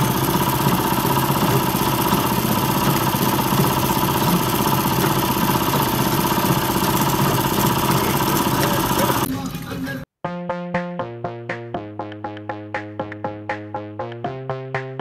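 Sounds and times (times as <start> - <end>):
grinding machine running: 0.0 - 9.3.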